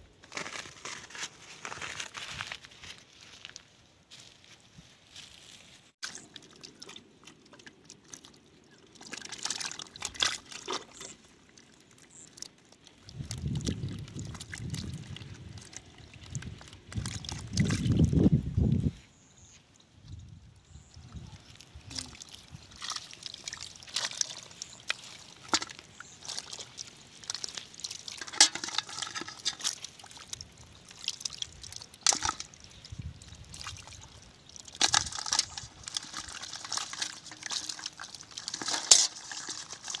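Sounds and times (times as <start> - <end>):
splashing in muddy water: 6.0 - 18.2, 21.4 - 40.0.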